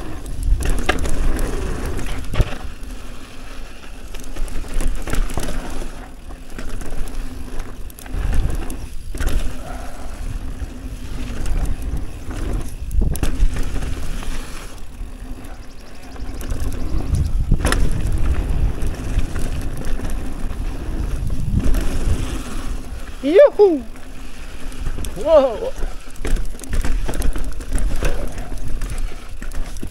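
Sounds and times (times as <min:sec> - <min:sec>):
bike knocking and clattering: 0:00.0 - 0:23.3, 0:23.9 - 0:29.9
bike tyres rumbling on dirt: 0:00.0 - 0:29.9
wind buffeting microphone: 0:08.1 - 0:14.2, 0:15.6 - 0:23.6.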